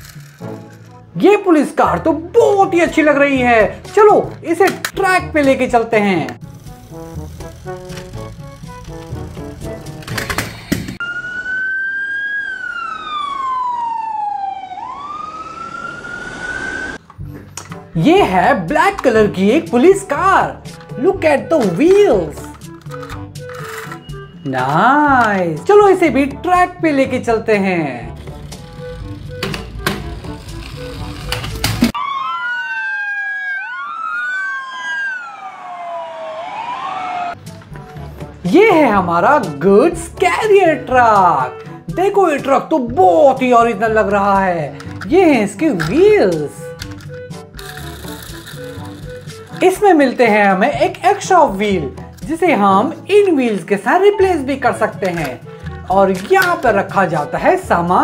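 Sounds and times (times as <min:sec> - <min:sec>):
background music: 0:00.0 - 0:15.2, 0:17.0 - 0:58.0
police siren wailing: 0:11.0 - 0:17.0, 0:31.9 - 0:37.4.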